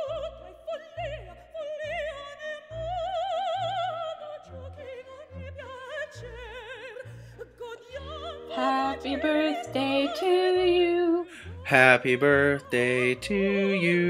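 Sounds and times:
operatic singing: 0:00.0 - 0:14.0
instrumental accompaniment: 0:07.8 - 0:14.0.

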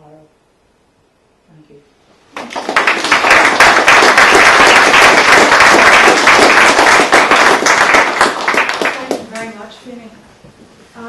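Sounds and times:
audience applauding: 0:02.3 - 0:09.5.

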